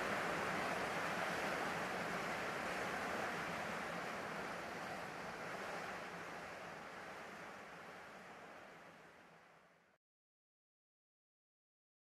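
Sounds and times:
sea waves washing: 0.0s - 9.4s.

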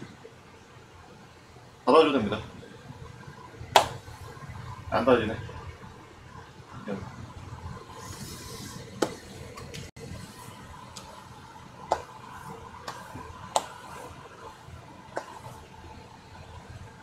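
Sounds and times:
low background noise: 0.0s - 17.0s.

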